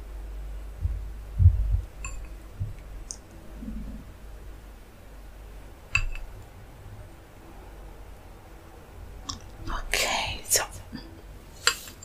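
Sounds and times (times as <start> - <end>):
soft low thumps of food: 0.8 - 3.0.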